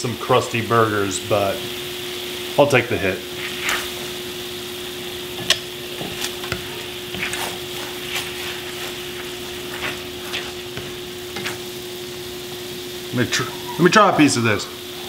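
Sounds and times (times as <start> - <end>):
steady low hum: 0.0 - 15.0
meatballs sizzling in a frying pan: 0.2 - 13.9
spatula scraping and tapping pan: 3.3 - 4.2, 4.9 - 12.3.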